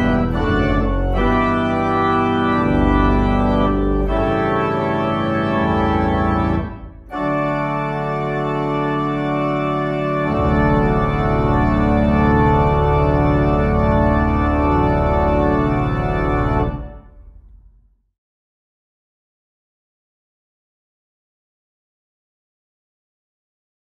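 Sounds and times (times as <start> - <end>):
church organ playing chords: 0.0 - 17.2.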